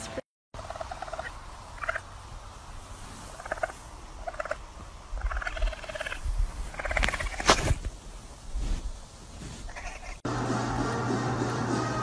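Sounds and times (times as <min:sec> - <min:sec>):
raccoon chittering: 0:00.6 - 0:02.1, 0:03.4 - 0:04.6, 0:05.2 - 0:07.4.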